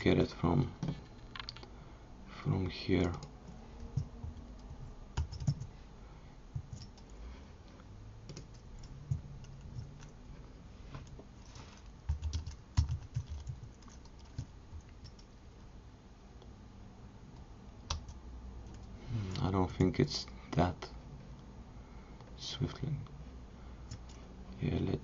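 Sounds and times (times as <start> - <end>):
computer keyboard typing: 3.0 - 5.7, 6.6 - 7.1, 8.2 - 10.2, 12.0 - 15.3, 17.9 - 18.9.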